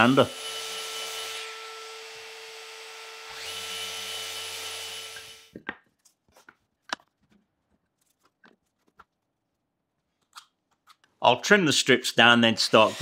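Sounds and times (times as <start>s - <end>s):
orbital sander on wood: 0.0s - 5.5s, 12.6s - 13.0s.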